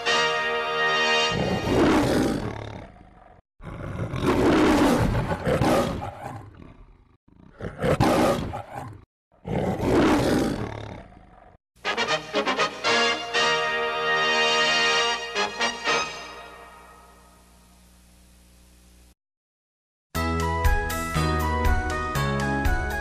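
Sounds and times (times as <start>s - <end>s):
orchestral music: 0.0s - 1.4s, 11.8s - 17.3s
lion roaring: 1.3s - 11.6s.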